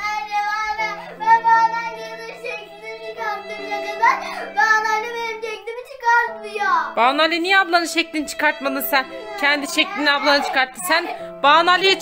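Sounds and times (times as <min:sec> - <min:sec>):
child singing: 0:00.0 - 0:07.0, 0:08.6 - 0:11.2
instrumental backing: 0:00.0 - 0:12.0.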